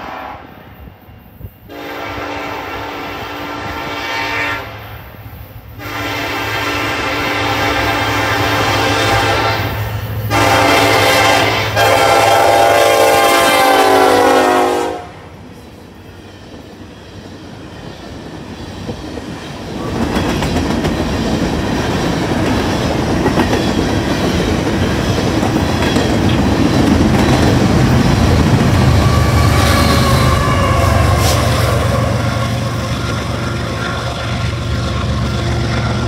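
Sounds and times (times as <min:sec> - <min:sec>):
locomotive horn blasts: 0:00.0 - 0:00.5, 0:01.7 - 0:04.8, 0:05.8 - 0:15.3, 0:28.8 - 0:33.8
train cars rumbling: 0:00.0 - 0:36.0
wheels clacking over rail joints: 0:16.6 - 0:30.7.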